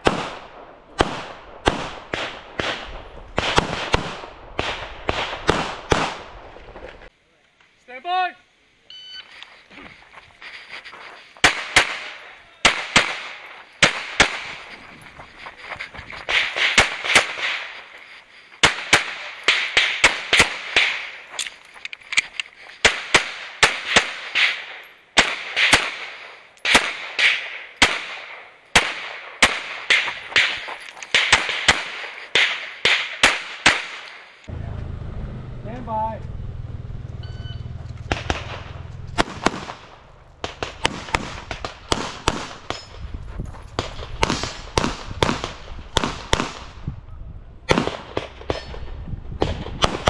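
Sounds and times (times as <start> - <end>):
pistol shots: 0.0 - 6.4, 11.4 - 14.6, 16.3 - 17.8, 18.6 - 21.3, 22.8 - 34.2, 38.1 - 42.8, 47.7 - 48.8, 49.4 - 50.0.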